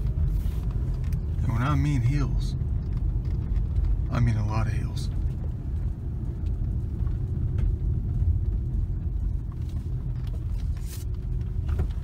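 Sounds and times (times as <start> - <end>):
car rumbling slowly: 0.0 - 12.0.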